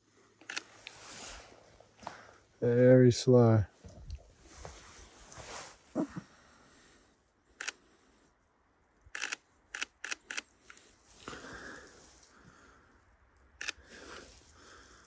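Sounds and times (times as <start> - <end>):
camera shutter clicks: 7.6 - 7.8, 9.1 - 10.8, 13.6 - 13.8.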